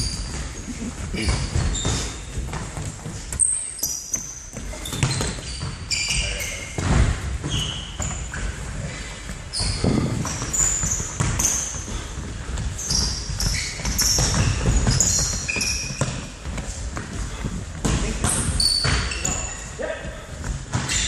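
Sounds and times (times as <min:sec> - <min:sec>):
feet running: 0:00.0 - 0:20.8
shoes squeaking on floor: 0:00.0 - 0:21.0
ball thudding and bouncing: 0:17.8 - 0:19.1.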